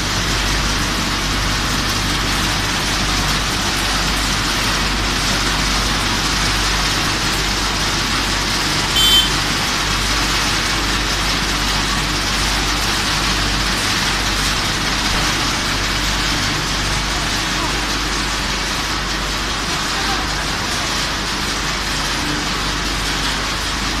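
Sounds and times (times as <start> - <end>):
machinery running with low hum: 0.0 - 24.0
short high-pitched tone: 8.9 - 9.4.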